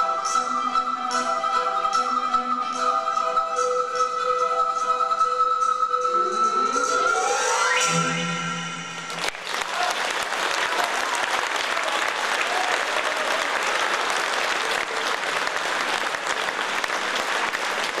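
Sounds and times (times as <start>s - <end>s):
orchestral note: 6.1s - 9.5s
audience applause: 9.1s - 18.0s.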